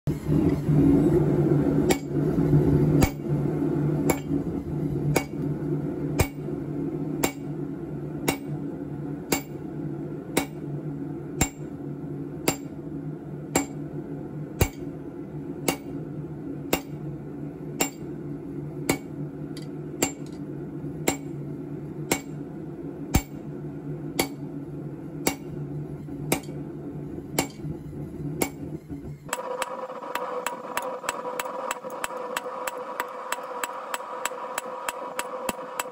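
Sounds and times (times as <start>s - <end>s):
forge humming: 0.1s - 35.9s
hammer striking metal on anvil: 1.8s - 2.2s, 3.0s - 3.3s, 4.0s - 4.4s, 5.1s - 5.5s, 6.2s - 6.5s, 7.2s - 7.5s, 8.2s - 8.6s, 9.3s - 9.6s, 10.3s - 10.7s, 11.4s - 11.8s, 12.4s - 12.8s, 13.5s - 13.8s, 14.6s - 14.9s, 15.6s - 16.0s, 16.7s - 17.0s, 17.8s - 18.1s, 18.9s - 20.4s, 21.0s - 21.4s, 22.1s - 22.4s, 23.1s - 23.4s, 24.2s - 24.5s, 25.2s - 25.6s, 26.3s - 26.6s, 27.3s - 27.7s, 28.4s - 28.7s, 29.3s - 35.9s.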